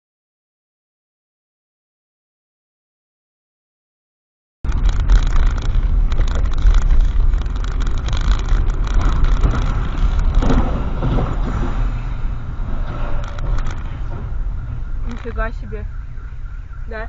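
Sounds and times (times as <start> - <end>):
car engine and tyres rumbling: 4.6 - 17.0.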